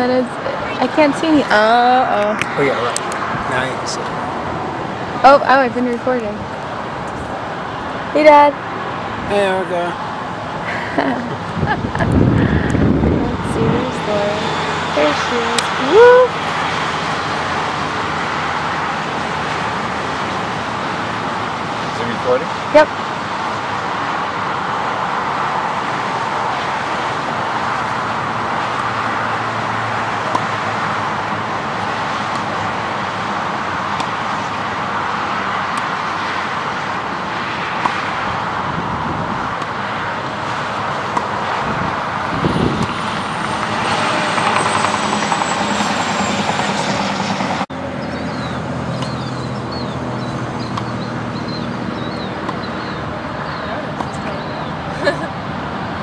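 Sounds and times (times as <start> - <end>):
steady rushing background noise: 0.0 - 56.0
tennis balls struck by racquets: 30.3 - 30.6.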